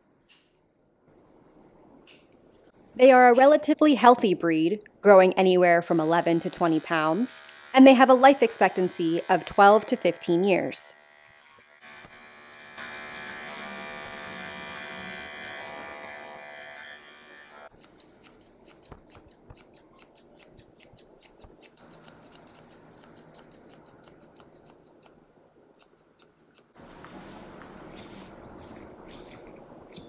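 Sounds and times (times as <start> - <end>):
pet clipper buzzing: 5.9 - 25.2
scissors snipping: 17.8 - 25.2.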